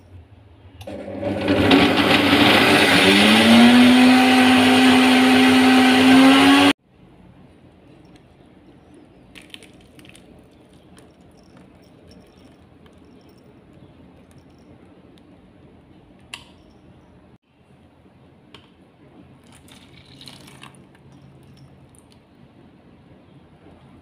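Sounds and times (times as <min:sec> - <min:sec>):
thick liquid pouring into bowl: 0:19.4 - 0:20.8.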